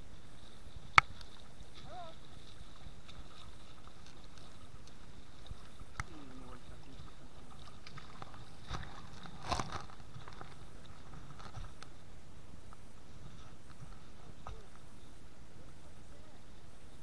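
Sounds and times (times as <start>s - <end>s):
river water flowing: 0.0s - 17.0s.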